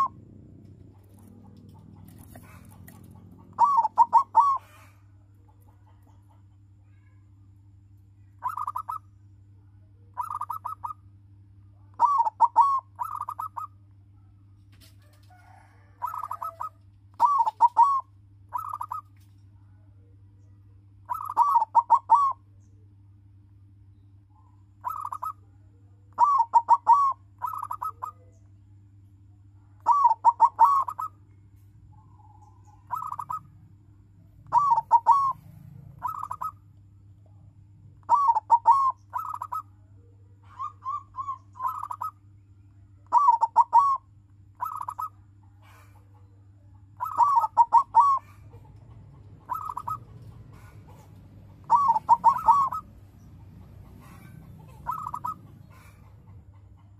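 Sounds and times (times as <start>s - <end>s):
dove cooing: 0.0s - 5.1s, 8.4s - 9.0s, 10.2s - 11.0s, 11.8s - 13.7s, 15.0s - 19.2s, 21.1s - 22.4s, 24.8s - 25.4s, 26.1s - 28.3s, 29.8s - 31.2s, 32.1s - 33.6s, 34.4s - 36.8s, 38.0s - 39.6s, 40.4s - 42.2s, 43.1s - 56.9s
faint low hum: 0.0s - 56.9s.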